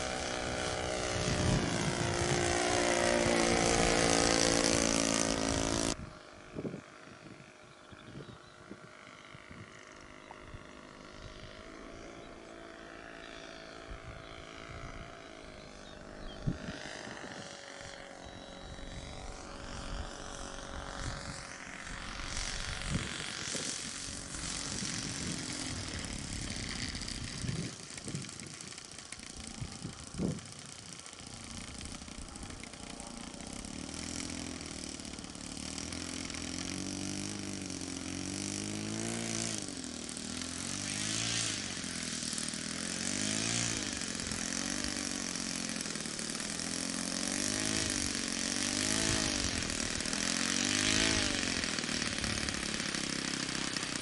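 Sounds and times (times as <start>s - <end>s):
model plane engine: 0.0s - 54.0s.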